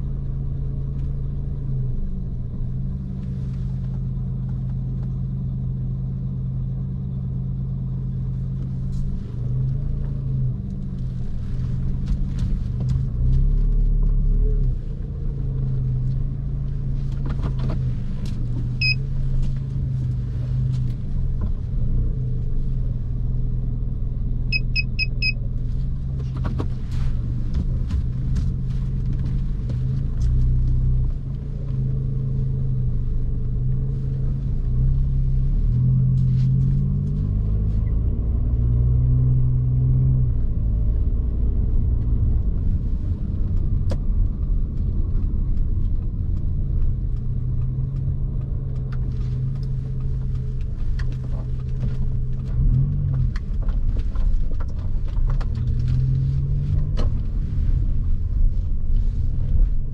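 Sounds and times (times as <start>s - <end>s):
car engine and road noise: 0.0s - 59.9s
short high beeps: 24.5s - 25.4s.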